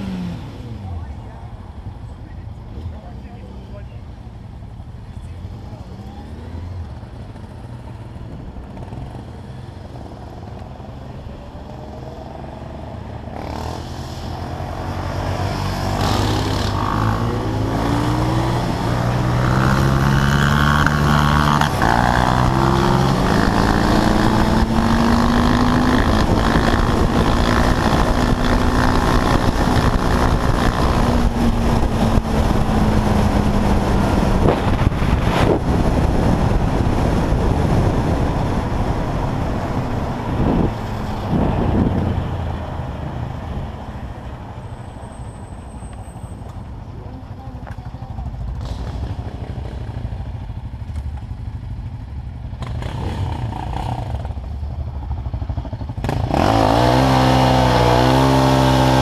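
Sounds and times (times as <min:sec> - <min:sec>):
wind and road noise: 0:00.0 - 0:59.0
quad bike engine revving: 0:11.8 - 0:39.4, 0:52.6 - 0:54.4, 0:55.7 - 0:59.0.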